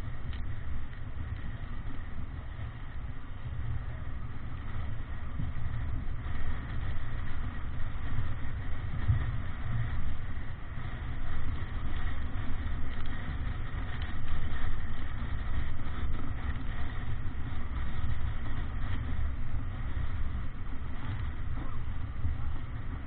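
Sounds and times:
water rushing along hull: 0.0s - 23.0s
wind buffeting microphone: 0.0s - 23.0s.

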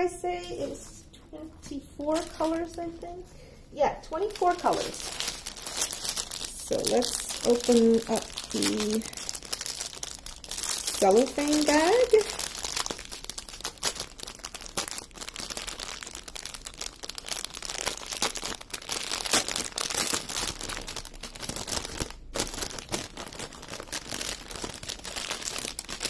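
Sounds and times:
cellophane bag crinkling: 0.5s - 3.5s, 4.1s - 26.0s.

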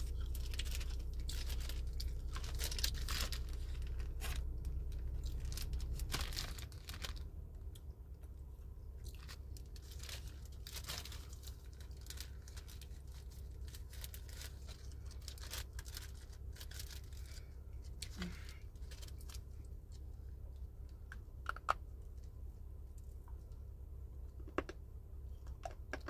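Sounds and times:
plastic bag crinkling: 0.0s - 7.4s, 9.0s - 20.0s
steady low hum: 0.0s - 26.0s.

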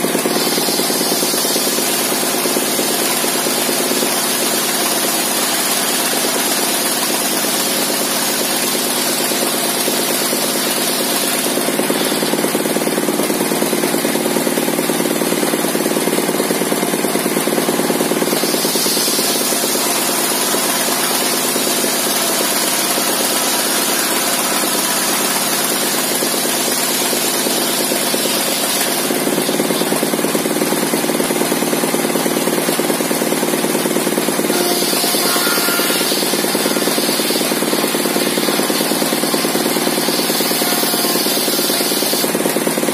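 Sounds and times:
circular saw ripping wood: 33.8s - 42.9s.

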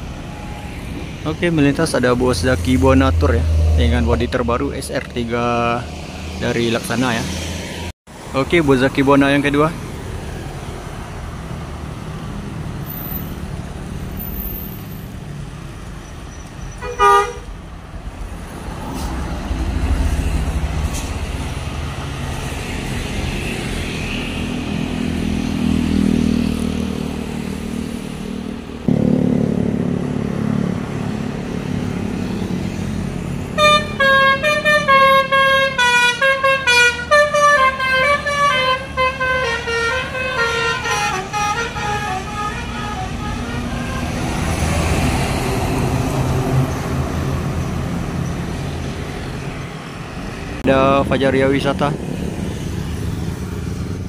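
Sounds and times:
heavy engine: 0.0s - 54.0s
road traffic passing: 0.0s - 54.0s
musical bus horn tune: 16.8s - 17.5s, 33.5s - 44.5s.

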